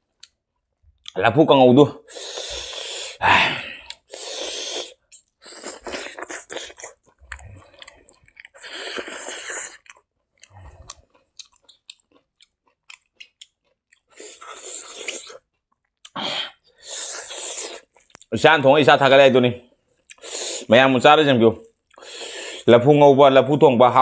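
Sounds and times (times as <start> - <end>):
chewing rice: 3.8 - 18.3
wet mouth clicks and smacks: 5.1 - 16.2, 17.2 - 18.3.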